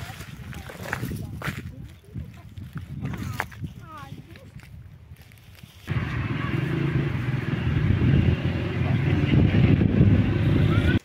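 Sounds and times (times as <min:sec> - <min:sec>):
wind buffeting microphone: 0:00.0 - 0:11.0
cars passing: 0:05.9 - 0:11.0.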